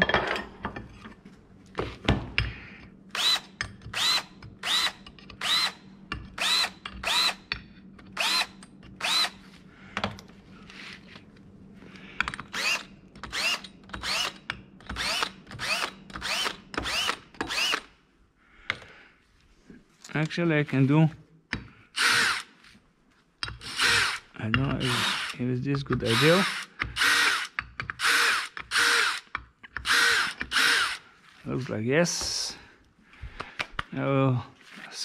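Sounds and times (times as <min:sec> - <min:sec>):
cordless drill whining: 0:03.1 - 0:05.8, 0:06.4 - 0:07.4, 0:08.2 - 0:09.5, 0:12.4 - 0:17.9, 0:22.0 - 0:22.5, 0:23.6 - 0:25.4, 0:26.1 - 0:31.1.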